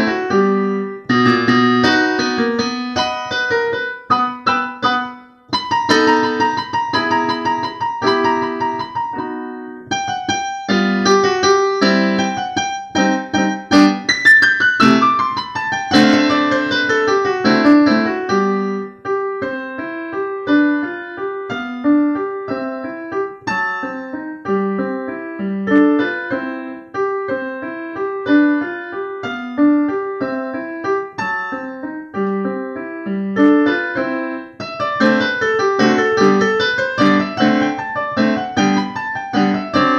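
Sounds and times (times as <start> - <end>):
classical piano piece: 0.0 - 39.9.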